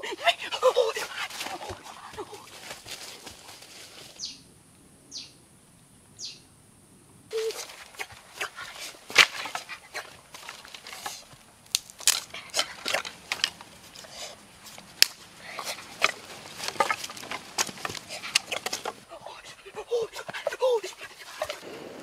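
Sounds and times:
twigs and dry leaves crackling: 0:00.2 - 0:04.4, 0:07.3 - 0:22.0
wooden sticks clacking: 0:07.3 - 0:19.1.

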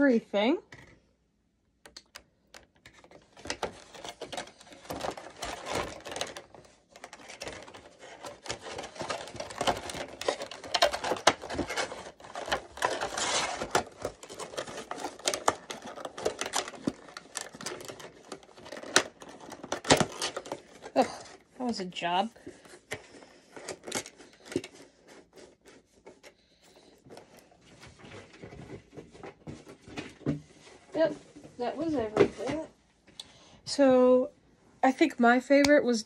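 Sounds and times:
plastic packaging crackling: 0:02.0 - 0:26.2.

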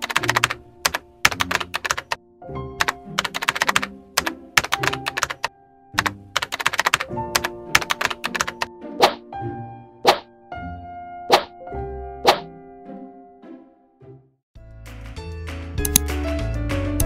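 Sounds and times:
keyboard typing clicks: 0:00.0 - 0:02.2, 0:02.8 - 0:08.7, 0:15.8 - 0:16.1
soft background music: 0:00.0 - 0:14.4, 0:15.2 - 0:17.0.

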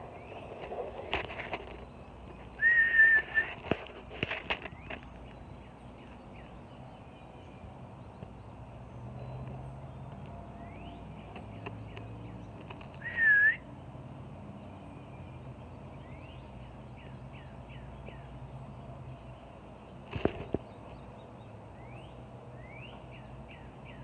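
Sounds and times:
small birds chirping: 0:00.0 - 0:24.0
loud whistled bird note: 0:02.6 - 0:03.5, 0:13.0 - 0:13.6.

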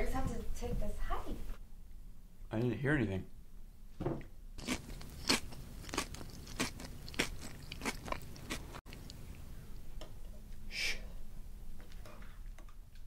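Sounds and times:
cereal crunching in mouth: 0:04.6 - 0:09.4.

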